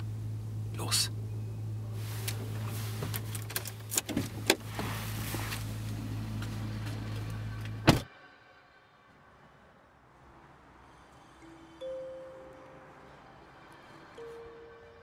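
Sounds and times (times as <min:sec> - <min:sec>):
car interior hum: 0:00.0 - 0:08.1.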